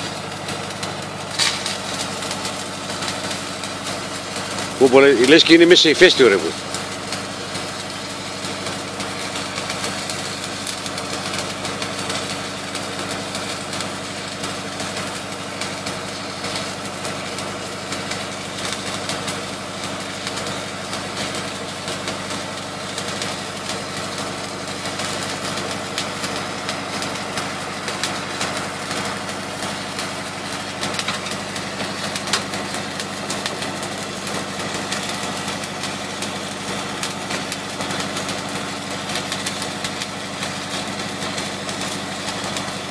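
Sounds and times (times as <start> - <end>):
engine droning: 0.0 - 10.9
welding arc crackling and hissing: 0.0 - 42.9.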